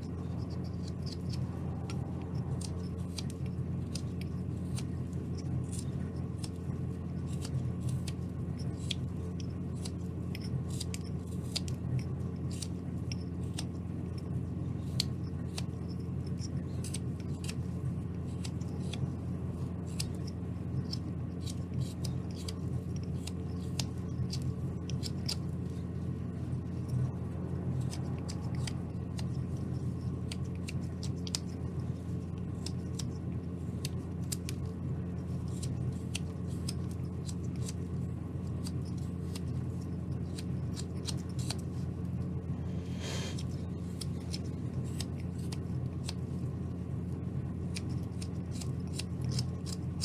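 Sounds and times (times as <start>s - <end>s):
steady low hum: 0.0s - 50.0s
knife snicking through wood: 42.7s - 46.2s, 47.7s - 50.0s.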